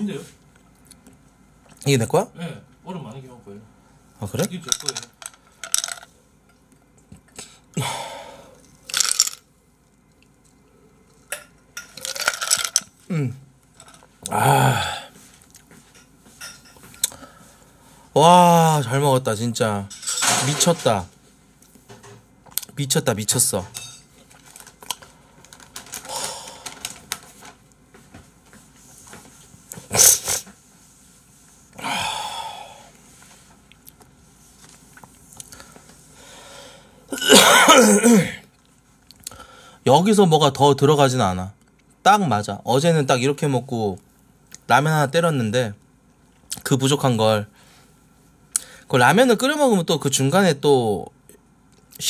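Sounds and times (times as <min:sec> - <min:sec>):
ice rattling in a glass: 0:11.8 - 0:12.9.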